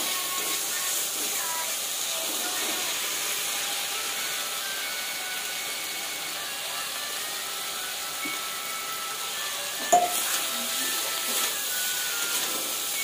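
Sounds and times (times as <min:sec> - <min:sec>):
vegetables sizzling in a pan: 0:00.0 - 0:13.0
metal spatula clanking on pan: 0:09.8 - 0:10.3.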